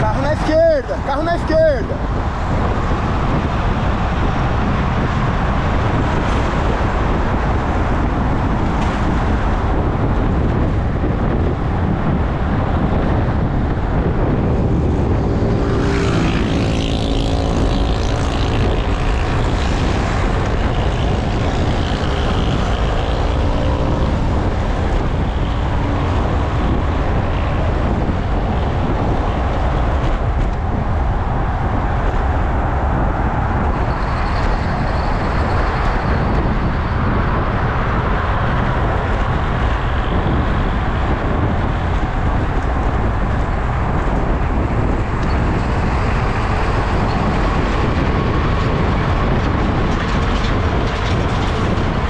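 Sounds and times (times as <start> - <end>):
traffic noise: 0.0 - 52.0
wind noise on microphone: 0.0 - 52.0
motor vehicle passing: 14.1 - 36.5.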